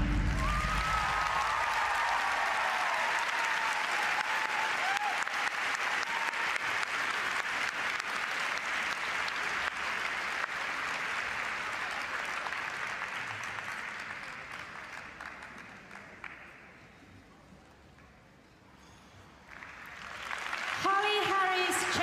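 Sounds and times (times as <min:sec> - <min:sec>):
audience applauding: 0:00.0 - 0:16.6, 0:19.5 - 0:22.0.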